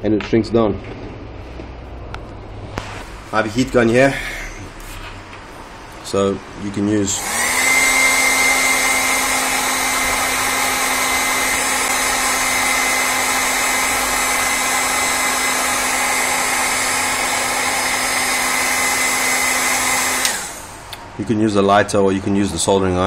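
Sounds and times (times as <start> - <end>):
heat gun blowing air with whine: 6.9 - 21.2.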